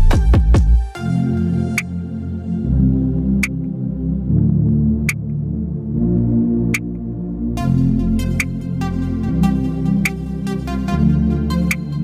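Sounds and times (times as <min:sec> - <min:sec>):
electronic music with drum beat: 0:00.0 - 0:02.1, 0:07.6 - 0:12.0.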